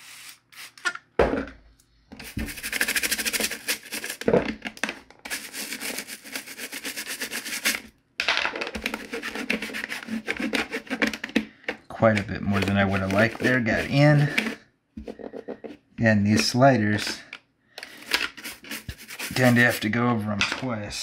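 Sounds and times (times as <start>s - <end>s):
toothbrush scrubbing plastic: 2.2s - 4.3s, 5.3s - 7.8s, 8.8s - 14.6s, 17.9s - 20.0s
cloth wiping surface: 12.5s - 14.6s, 18.4s - 19.9s.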